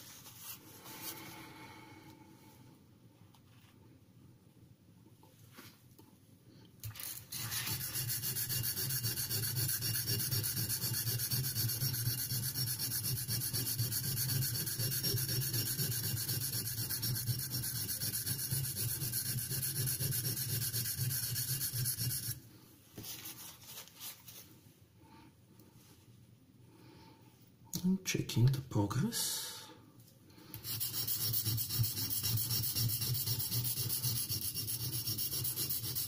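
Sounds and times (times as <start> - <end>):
knife rasping on sharpening stone: 7.3 - 22.4, 30.6 - 36.0.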